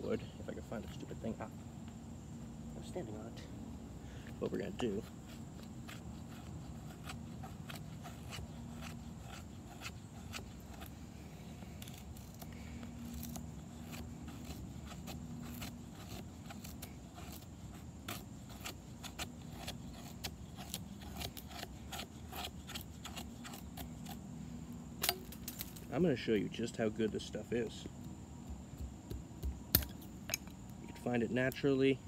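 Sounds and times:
knife scraping wood: 4.6 - 25.9.

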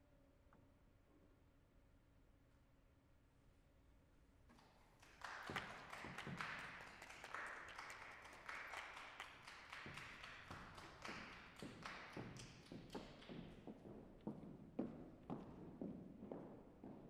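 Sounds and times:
small audience applauding: 4.5 - 13.8.

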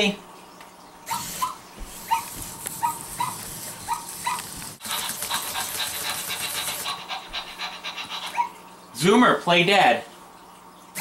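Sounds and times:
electronic puppy yips: 1.1 - 5.0, 8.0 - 8.6.

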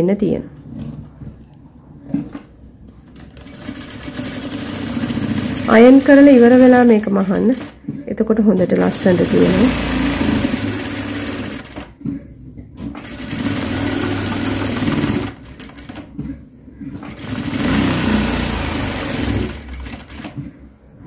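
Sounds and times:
sewing machine stitching: 3.1 - 7.8, 8.6 - 12.0, 12.8 - 16.2, 16.9 - 20.5.

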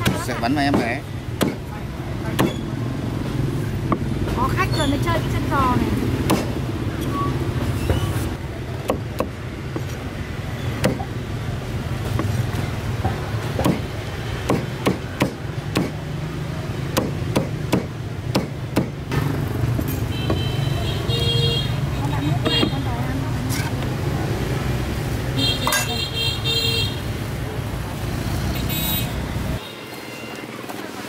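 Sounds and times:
cleaver chopping meat and bone: 0.0 - 1.7, 2.3 - 2.6, 6.2 - 6.6, 8.8 - 9.9, 10.8 - 11.1, 13.5 - 16.0, 16.9 - 19.1.

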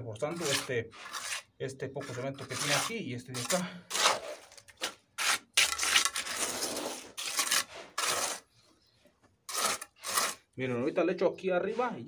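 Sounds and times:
trowel scraping wet mortar: 0.2 - 8.6, 9.5 - 10.6.

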